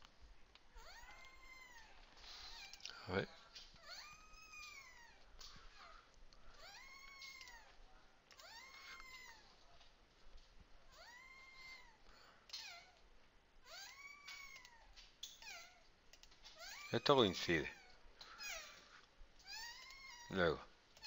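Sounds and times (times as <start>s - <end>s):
cat meowing faintly: 0.8s - 6.0s, 6.6s - 9.6s, 10.9s - 13.0s.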